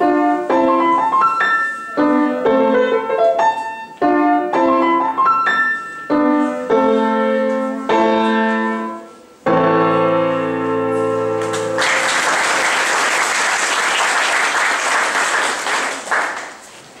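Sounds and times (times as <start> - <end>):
grand piano chords: 0.0 - 16.2
audience applause: 11.4 - 16.8.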